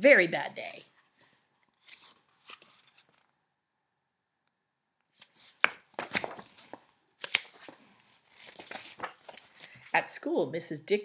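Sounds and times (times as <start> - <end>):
book pages rustling: 0.9 - 3.4, 5.1 - 10.0
paper flicks and taps: 5.2 - 7.8.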